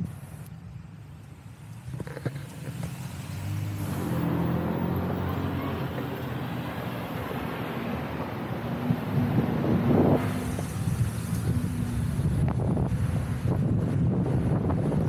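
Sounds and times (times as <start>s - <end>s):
low vehicle hum: 0.0s - 15.0s
rush of air: 7.4s - 15.0s.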